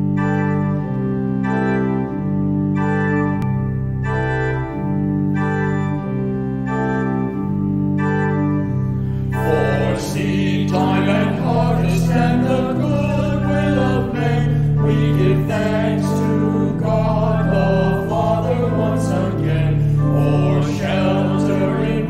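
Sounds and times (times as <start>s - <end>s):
organ playing held chords: 0.0s - 22.0s
choir singing: 9.3s - 22.0s.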